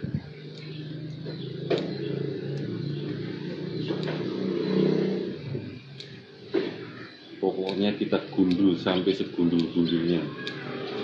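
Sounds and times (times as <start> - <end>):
engine humming steadily: 0.0 - 7.0
sharp clicks: 0.4 - 4.6, 5.4 - 6.8, 7.6 - 11.0.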